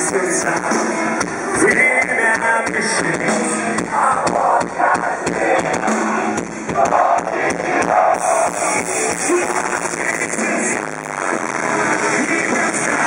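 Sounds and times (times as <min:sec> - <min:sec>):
drums: 0:00.0 - 0:13.0
electric guitar: 0:00.0 - 0:13.0
person singing: 0:06.7 - 0:13.0.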